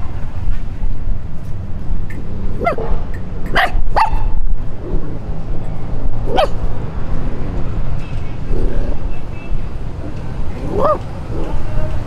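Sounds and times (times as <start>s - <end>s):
puppy barking: 2.6s - 4.4s, 6.2s - 6.7s, 10.6s - 11.6s.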